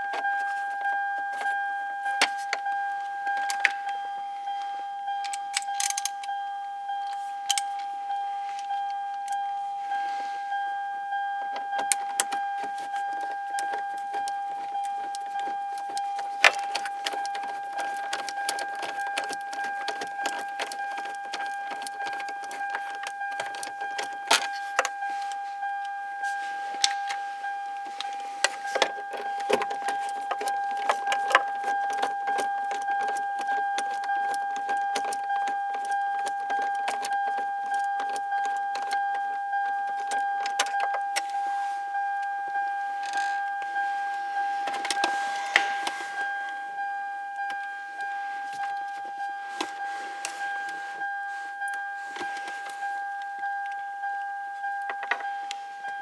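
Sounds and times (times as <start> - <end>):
car warning chime dinging: 0.0 - 56.0.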